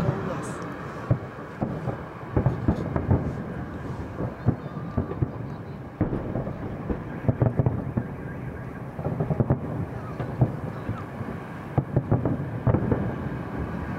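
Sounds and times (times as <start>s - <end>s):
fireworks bursting: 0.0s - 13.9s.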